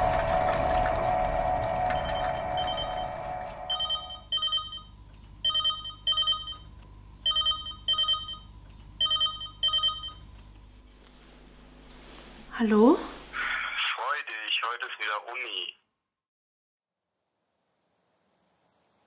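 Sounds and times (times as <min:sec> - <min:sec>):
smartphone ringtone: 0:00.0 - 0:10.3.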